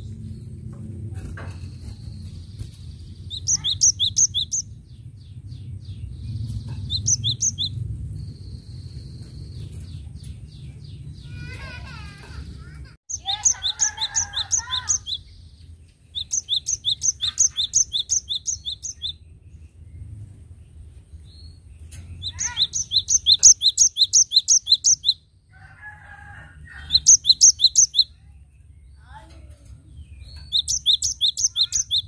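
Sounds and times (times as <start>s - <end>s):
bird singing rapid high notes: 3.0s - 4.8s, 6.6s - 7.8s, 13.1s - 19.2s, 21.4s - 25.2s, 27.0s - 28.2s, 30.0s - 32.0s.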